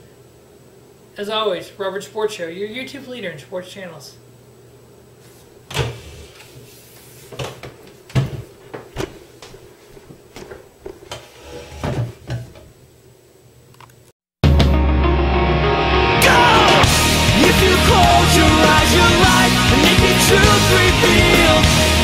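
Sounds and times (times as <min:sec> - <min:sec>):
heavy rock music: 0:14.4 - 0:22.0.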